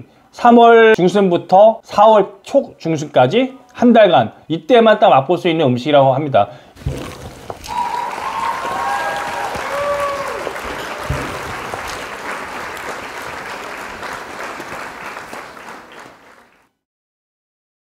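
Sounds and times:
crowd applause: 7.6s - 16.7s
crowd cheering: 7.6s - 16.7s.

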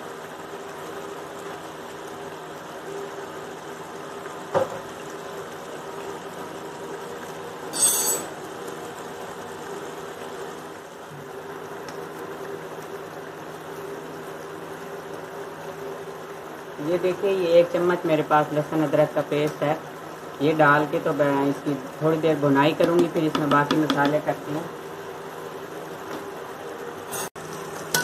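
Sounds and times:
chicken frying in oil: 0.0s - 28.0s.

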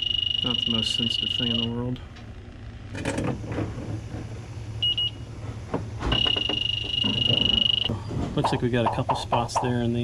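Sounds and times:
high beeps: 0.0s - 1.8s, 6.2s - 7.9s
high rapidly pulsing alarm tone: 0.0s - 2.0s, 6.0s - 9.1s.

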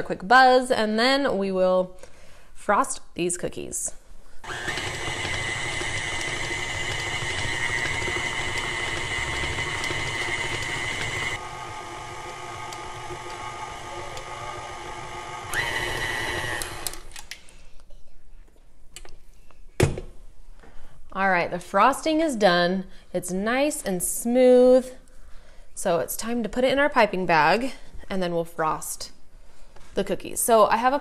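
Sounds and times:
stand mixer motor whining: 4.4s - 17.1s.

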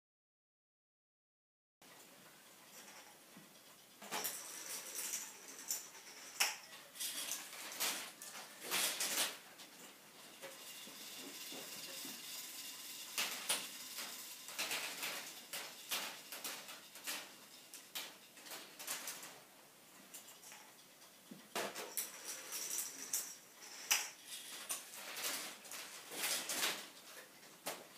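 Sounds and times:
reels whirring: 2.4s - 21.0s.

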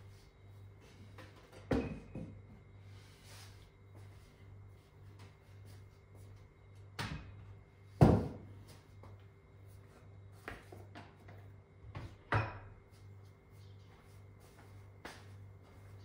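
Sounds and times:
household knocks and clunks: 1.2s - 2.5s, 8.0s - 8.5s.

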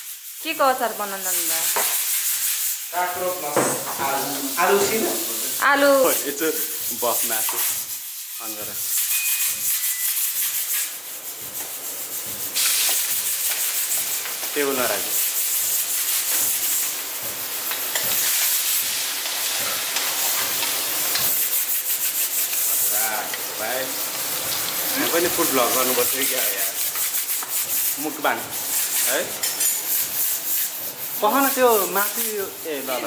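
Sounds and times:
food sizzling in hot oil: 0.0s - 33.0s
person speaking: 2.9s - 7.5s, 24.9s - 26.8s, 31.2s - 33.0s
metal ladle scraping: 8.4s - 15.4s.

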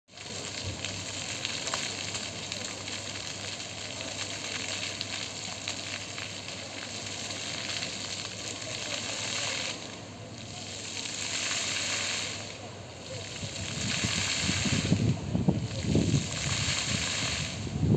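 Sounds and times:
fountain water splashing: 0.1s - 17.9s.

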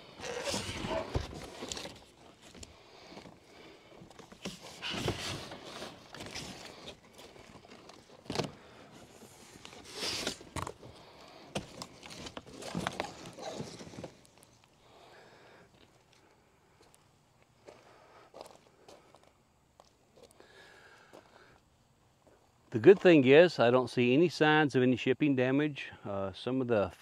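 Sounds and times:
cardboard scraping and rustling: 0.1s - 3.4s, 4.0s - 10.9s, 11.5s - 14.6s
footsteps on gravel: 17.6s - 20.4s.

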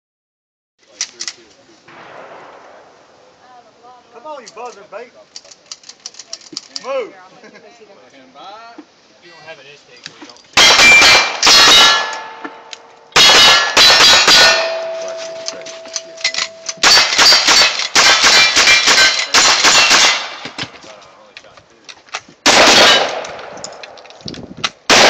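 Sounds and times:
gunshots: 1.9s - 3.3s, 10.6s - 20.8s, 22.4s - 24.0s
steel plate ringing clang: 10.6s - 12.6s, 13.2s - 20.4s.

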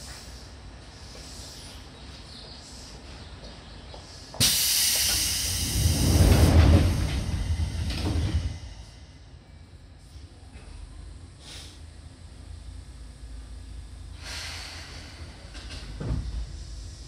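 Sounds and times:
compressed air hiss: 4.4s - 6.0s, 11.4s - 11.8s, 14.2s - 15.5s
low rumble: 5.4s - 11.2s.

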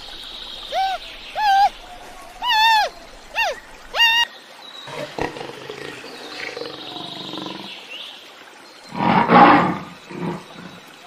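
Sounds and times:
big cat growling: 4.9s - 7.7s, 8.9s - 10.8s
big cat roaring: 8.9s - 10.8s.

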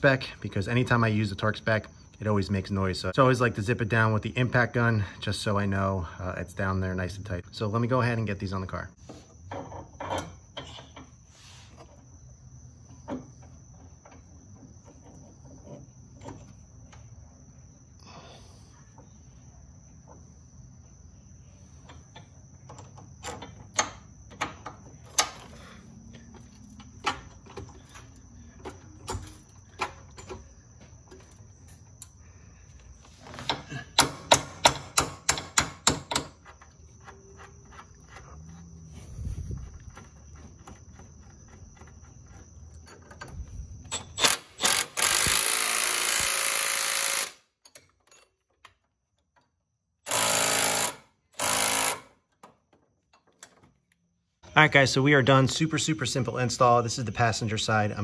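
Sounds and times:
metal tools clinking: 47.6s - 48.7s.

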